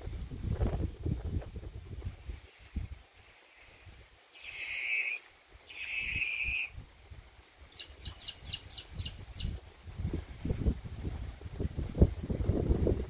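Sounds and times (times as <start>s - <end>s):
low wind rumble: 0.0s - 4.3s, 5.4s - 13.0s
harsh raspy bird calls: 4.3s - 6.7s.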